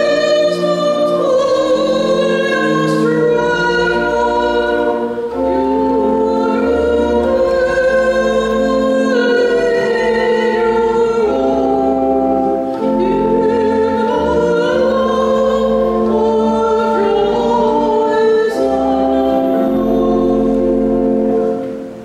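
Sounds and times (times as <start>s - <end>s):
instrumental accompaniment: 0.0s - 22.0s
person singing a hymn: 0.0s - 22.0s.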